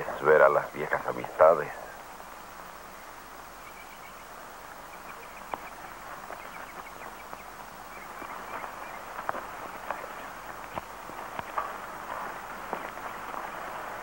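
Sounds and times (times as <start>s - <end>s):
steady hiss: 0.0s - 14.0s
bird chirps: 2.9s - 11.6s
footsteps on dirt: 4.5s - 14.0s
horse moving on dirt: 4.8s - 14.0s.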